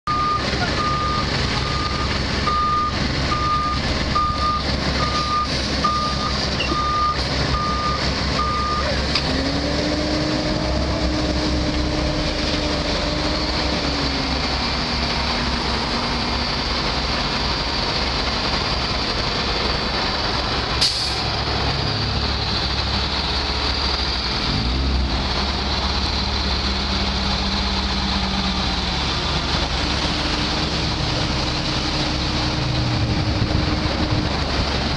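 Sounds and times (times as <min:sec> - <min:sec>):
diesel engines running: 0:00.0 - 0:34.9
backup alarm beeping: 0:00.1 - 0:08.9.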